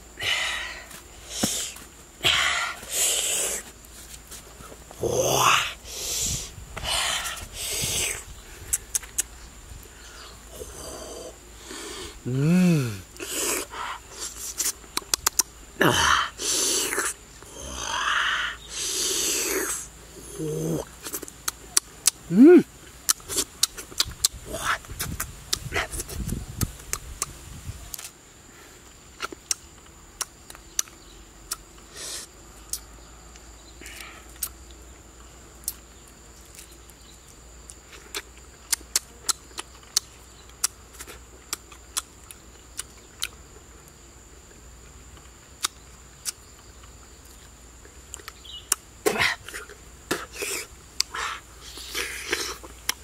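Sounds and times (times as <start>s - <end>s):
wet chewing and lip-smacking: 8.7s - 9.4s, 14.2s - 15.5s, 23.1s - 27.3s, 29.2s - 31.7s, 37.6s - 43.4s.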